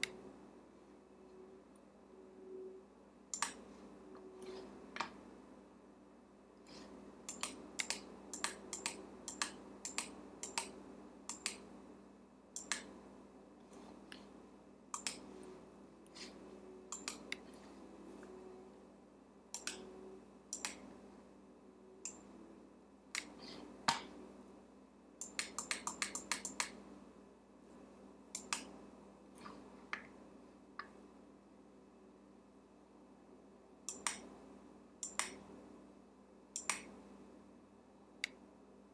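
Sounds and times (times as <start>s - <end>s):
faint steady hum: 0.0s - 38.9s
computer mouse clicks: 3.3s - 3.6s, 6.7s - 11.7s, 12.6s - 13.0s, 14.9s - 15.3s, 16.9s - 17.4s, 19.5s - 19.9s, 20.5s - 20.9s, 23.1s - 23.4s, 25.2s - 26.8s, 28.3s - 28.7s, 33.9s - 34.3s, 35.0s - 35.4s, 36.6s - 36.9s.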